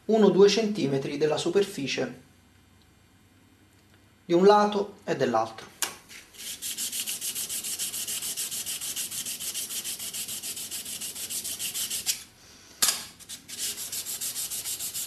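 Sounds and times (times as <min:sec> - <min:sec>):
steel scraper rubbing on sharpening plate: 0:06.4 - 0:12.3, 0:13.2 - 0:15.0.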